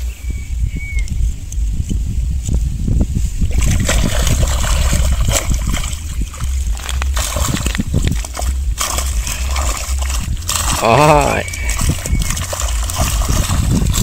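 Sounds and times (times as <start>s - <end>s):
water splashing and sloshing: 3.3s - 14.0s.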